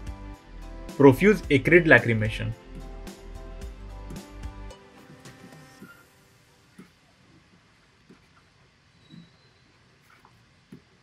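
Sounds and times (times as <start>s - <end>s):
room hiss: 0.0s - 11.0s.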